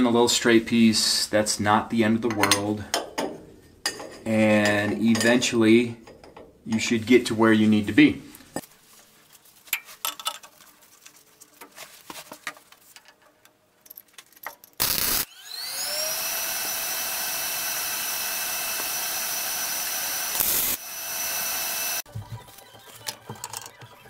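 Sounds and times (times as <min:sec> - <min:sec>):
power tool motor whine: 0:14.8 - 0:22.0.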